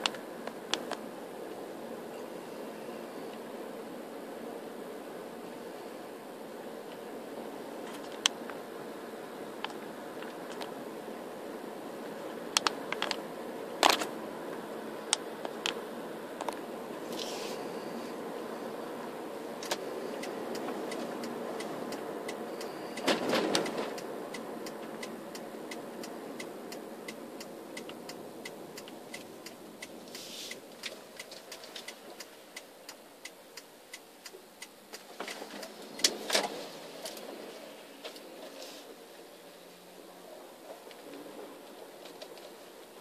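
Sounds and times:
car road and cabin noise: 0:00.0 - 0:43.0
regular ticking: 0:19.6 - 0:36.1.

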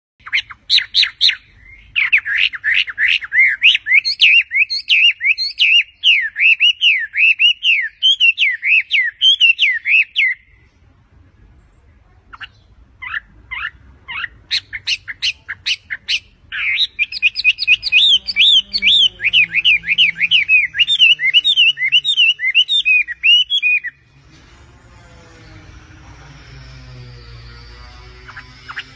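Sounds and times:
bird singing whistled notes: 0:00.2 - 0:10.6, 0:12.4 - 0:24.1.

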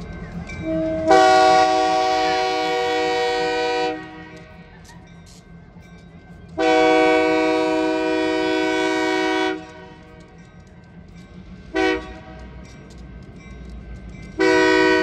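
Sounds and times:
locomotive air horn blasts: 0:00.6 - 0:04.5, 0:06.6 - 0:10.2, 0:11.7 - 0:12.4, 0:14.4 - 0:15.0.

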